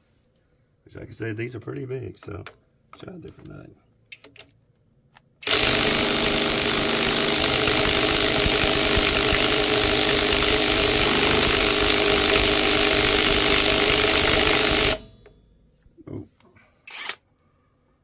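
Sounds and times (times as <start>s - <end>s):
impact wrench hammering on lug nut: 5.4s - 15.3s.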